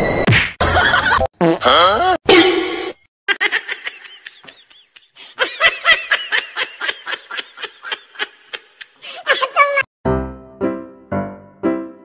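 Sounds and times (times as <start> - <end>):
person giggling: 3.3 - 9.9.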